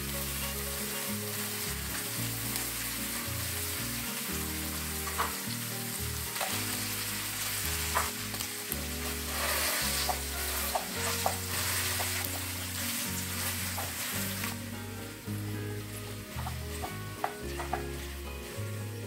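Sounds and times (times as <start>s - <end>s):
tofu sizzling in hot oil: 0.0s - 19.0s
metal fork scraping a pan: 9.1s - 12.4s.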